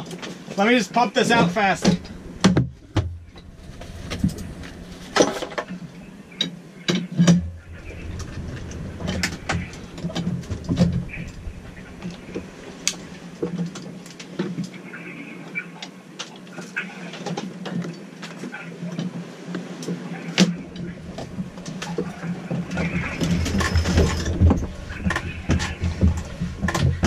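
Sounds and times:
steady low hum: 0:00.9 - 0:14.2, 0:20.2 - 0:27.0
gear knocking and clattering: 0:20.7 - 0:27.0.

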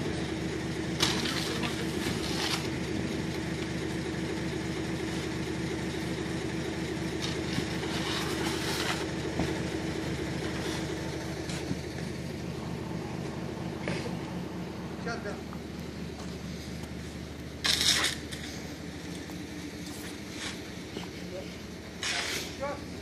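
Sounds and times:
concrete pouring rush: 0:00.0 - 0:12.2, 0:19.9 - 0:23.0
concrete mixer truck droning: 0:00.0 - 0:23.0.

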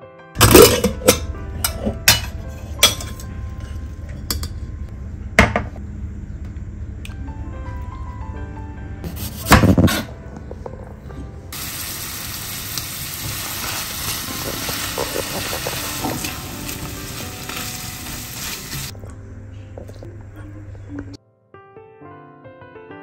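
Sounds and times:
stir-fry sizzling in frying pan: 0:11.6 - 0:18.9.

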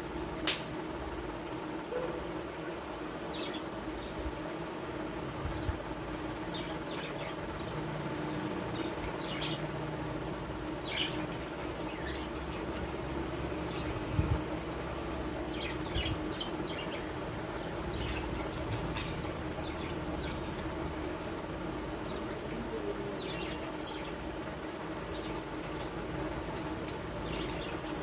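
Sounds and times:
steady hum: 0:00.0 - 0:28.0
parrots chirping: 0:06.3 - 0:14.0, 0:14.9 - 0:22.5, 0:23.1 - 0:28.0.

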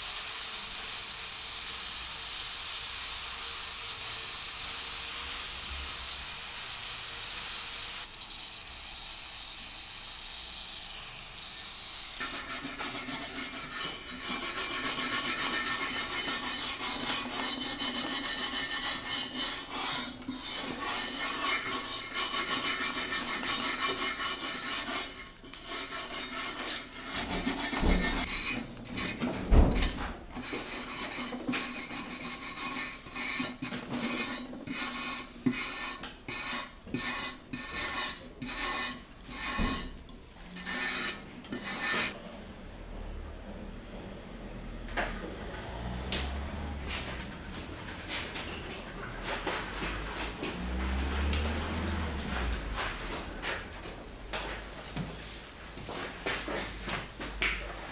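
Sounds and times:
brush scratching metal surface: 0:12.2 - 0:42.2.

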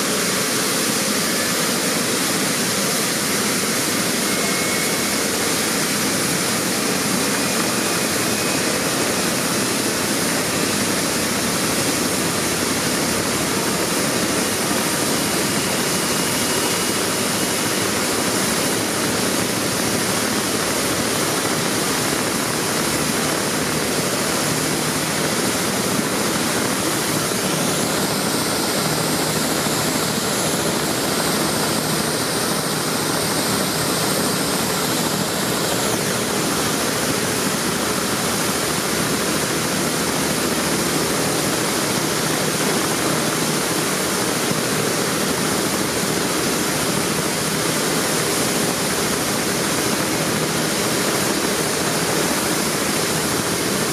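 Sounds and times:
helicopter turbine and rotor noise: 0:00.0 - 0:53.9.

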